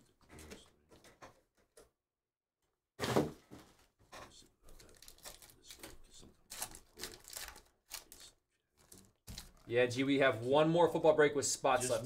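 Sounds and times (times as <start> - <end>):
card packaging crinkling: 4.8 - 5.9, 6.5 - 9.7.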